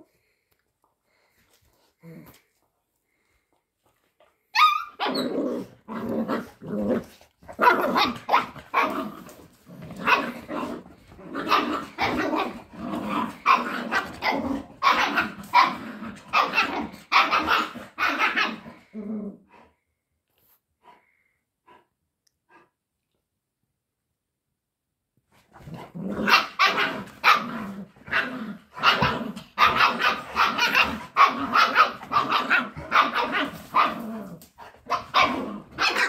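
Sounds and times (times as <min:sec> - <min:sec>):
dog yipping: 0:04.5 - 0:05.4, 0:34.9 - 0:36.0
dogs growling barks: 0:04.9 - 0:19.5, 0:25.6 - 0:36.0.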